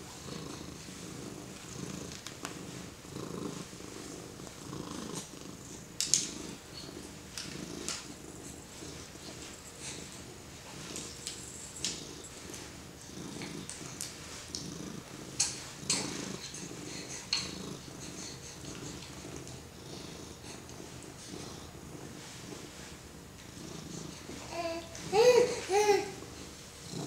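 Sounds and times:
cat purring: 0:00.0 - 0:27.0
soft clicks and rustles: 0:01.5 - 0:02.9, 0:05.2 - 0:14.7.

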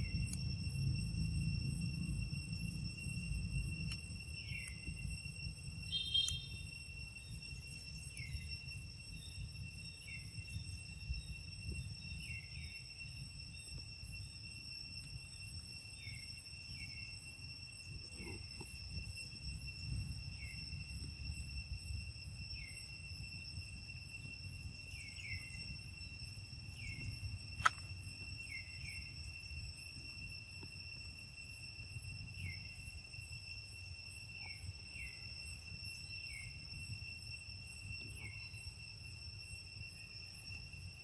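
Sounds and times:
high-pitched insect drone: 0:00.0 - 0:41.0
sharp click: 0:27.6 - 0:27.9.

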